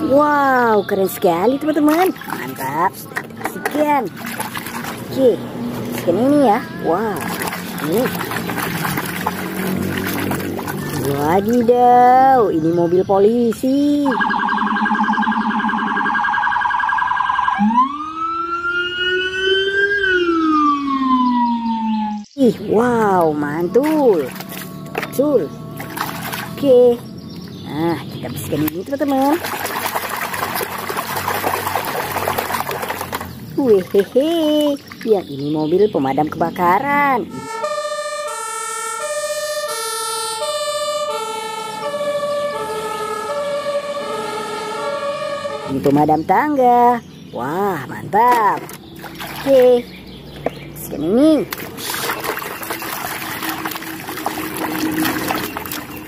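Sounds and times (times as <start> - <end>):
police siren: 6.1 - 13.0, 13.9 - 27.3, 36.8 - 46.1, 52.7 - 56.0.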